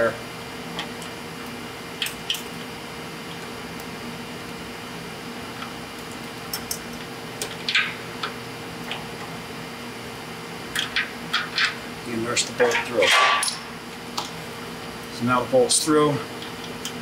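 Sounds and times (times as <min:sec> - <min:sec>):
wire clicks and scrape on metal: 0:12.5 - 0:13.6.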